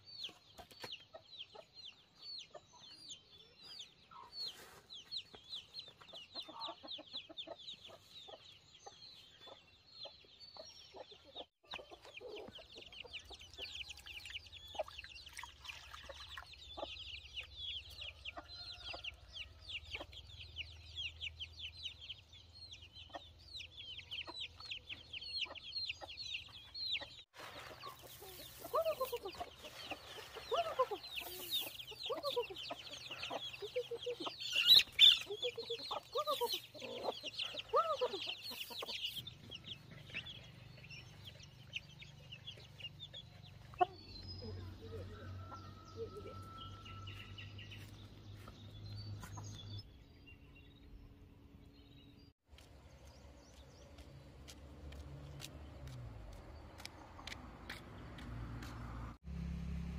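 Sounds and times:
chickens chirping: 0.0 - 53.8
chickens calling loudly: 4.0 - 15.1, 16.5 - 48.0.

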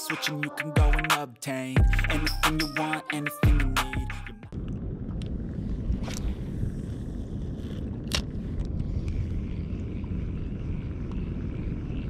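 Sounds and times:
wind rumble on microphone: 4.5 - 12.0.

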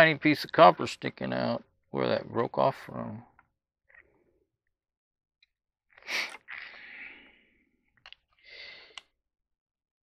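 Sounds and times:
man breathing: 6.0 - 7.8, 8.4 - 9.1.

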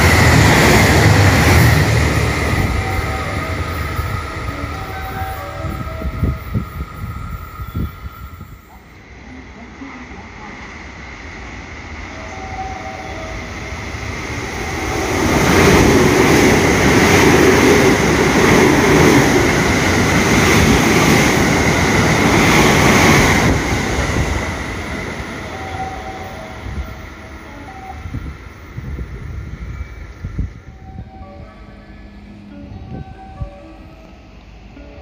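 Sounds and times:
train passing with high ring: 0.0 - 35.0.

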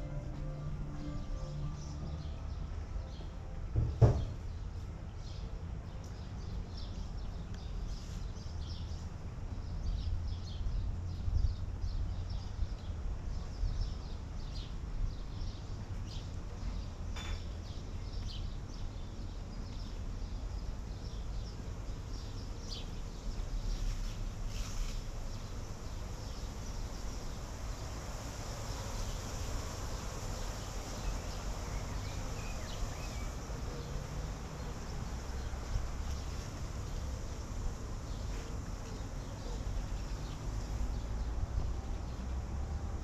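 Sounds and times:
sharp knock: 3.8 - 4.4
small birds chirping: 4.1 - 41.5.

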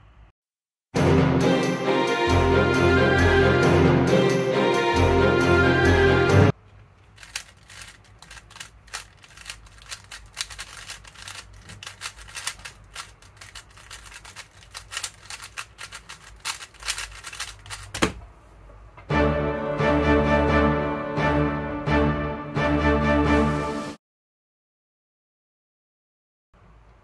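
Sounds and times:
puzzle cube plastic clicks: 6.7 - 18.2.

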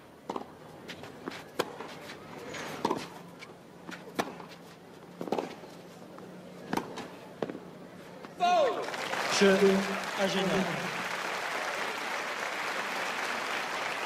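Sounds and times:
racket hitting tennis ball: 0.3 - 5.6, 6.7 - 7.6.

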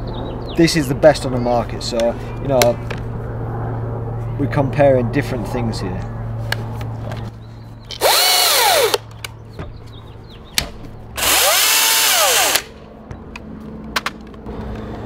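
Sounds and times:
chainsaw motor revving: 7.9 - 9.0, 11.2 - 12.8.

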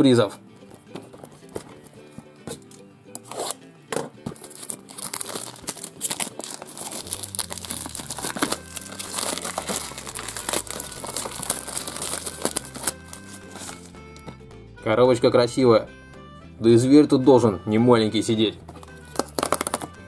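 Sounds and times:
packaging crinkling and tearing: 4.4 - 13.9, 18.8 - 20.0.

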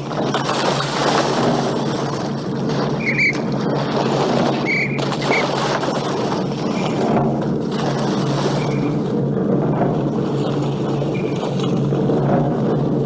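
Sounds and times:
loud rushing noise: 0.0 - 13.0
whistle blasts: 3.0 - 3.4, 4.6 - 5.5.

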